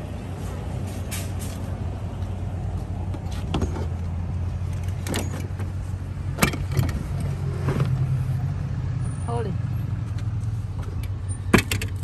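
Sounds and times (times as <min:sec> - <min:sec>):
metal clanks and rattles: 0:03.1 - 0:08.0, 0:10.8 - 0:12.0.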